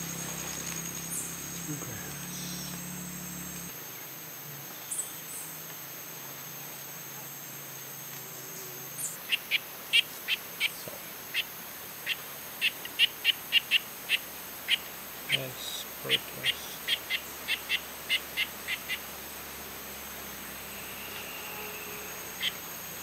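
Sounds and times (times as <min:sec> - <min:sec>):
high-pitched insect drone: 0:00.0 - 0:23.0.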